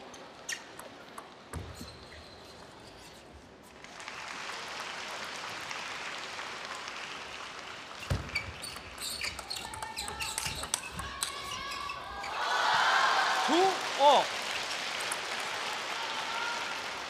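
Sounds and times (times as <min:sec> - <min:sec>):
shoe squeaks: 0:00.1 - 0:00.9, 0:01.5 - 0:03.5, 0:08.0 - 0:12.4
spectators clapping: 0:03.8 - 0:08.1, 0:12.4 - 0:17.0
table-tennis ball clicks: 0:08.1 - 0:11.6.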